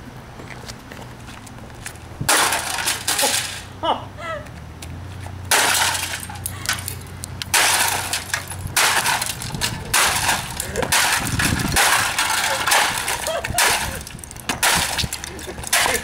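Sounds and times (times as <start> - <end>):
plastic pieces crunching and scattering: 7.5 - 16.0.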